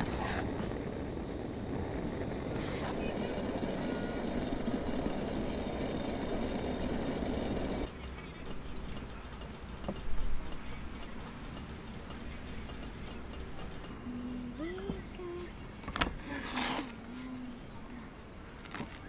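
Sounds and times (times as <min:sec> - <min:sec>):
gas stove burner hissing: 0:00.0 - 0:07.9
outdoor background: 0:00.0 - 0:19.0.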